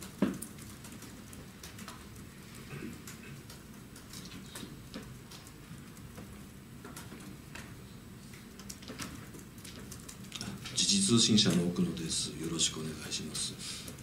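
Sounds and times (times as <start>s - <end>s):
room hum: 0.0s - 14.0s
light clicks and taps: 3.1s - 10.8s.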